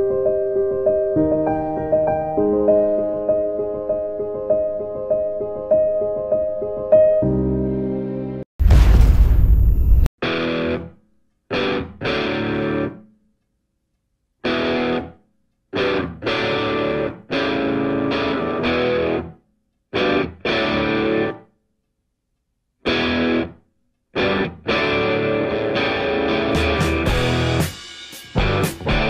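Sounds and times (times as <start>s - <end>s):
distorted electric guitar stabs: 11.5s - 13.0s, 14.5s - 15.1s, 24.2s - 29.0s.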